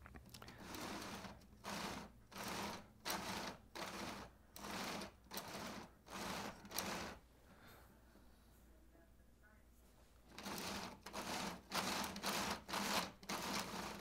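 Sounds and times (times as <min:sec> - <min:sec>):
plastic gear teeth grinding: 0:00.2 - 0:07.2, 0:10.3 - 0:14.0.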